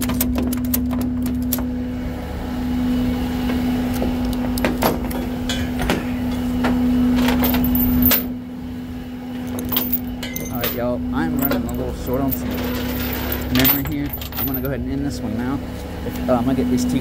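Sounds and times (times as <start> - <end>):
tow truck engine humming: 0.0 - 17.0.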